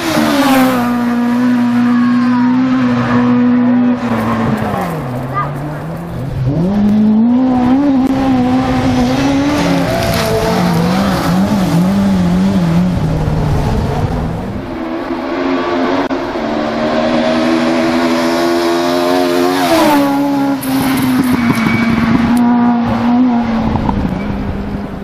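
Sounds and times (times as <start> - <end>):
rally cars at full throttle: 0.0 - 25.0.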